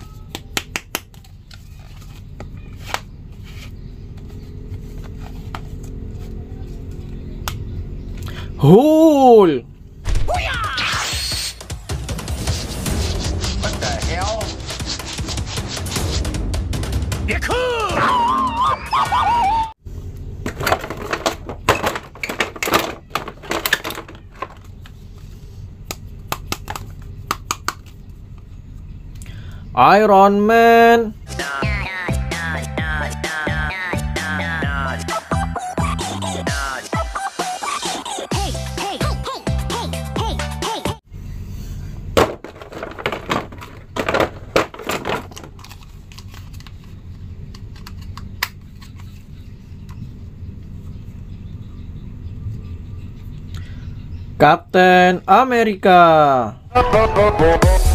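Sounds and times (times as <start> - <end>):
music: 10.4 - 19.7, 31.2 - 41.0, 56.7 - 57.9.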